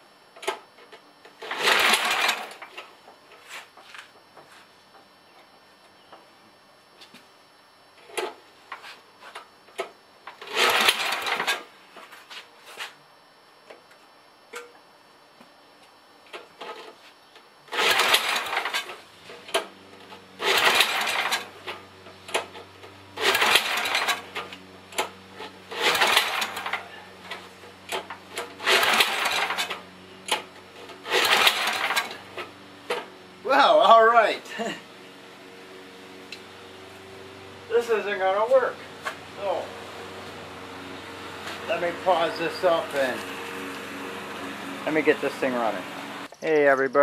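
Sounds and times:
small engine cranking: 1.4 - 2.8, 10.3 - 11.7, 17.7 - 33.1, 36.3 - 46.3.

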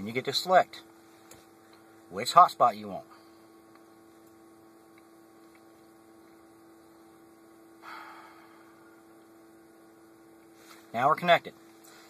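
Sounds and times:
faint steady hum: 0.0 - 12.0.

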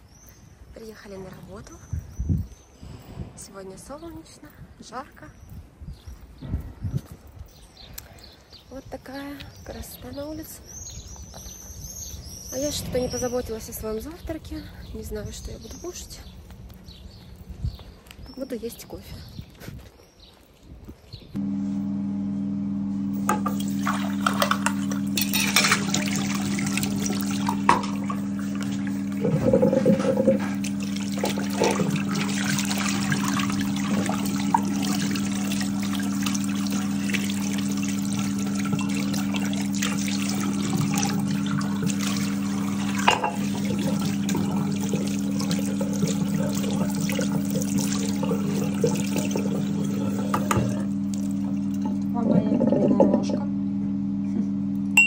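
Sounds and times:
coffee machine pump hum: 21.4 - 55.0
liquid running: 23.2 - 53.5.

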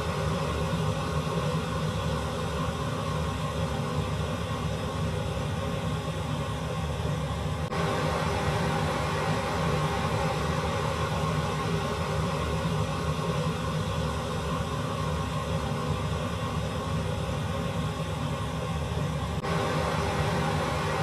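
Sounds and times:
faint hum: 0.0 - 21.0
gas burner roaring: 6.7 - 21.0.

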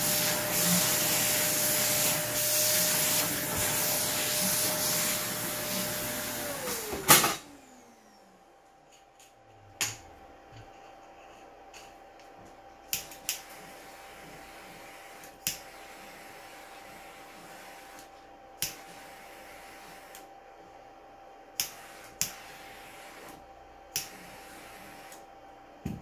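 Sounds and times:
electric blower hissing: 0.0 - 8.2.

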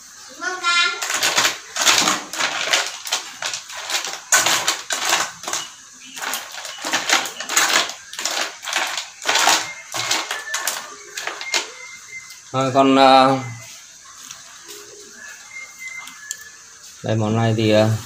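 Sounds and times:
utensil scraping a cooking pot: 1.0 - 11.7.

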